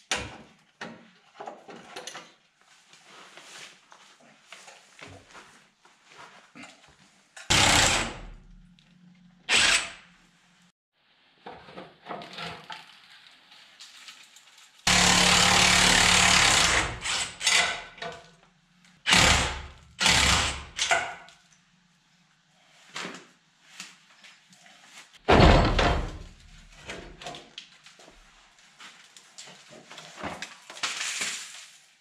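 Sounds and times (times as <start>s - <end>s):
clinks of tools and parts: 0.1s - 2.5s
impact wrench hammering on bolts: 7.5s - 8.3s, 14.9s - 17.9s.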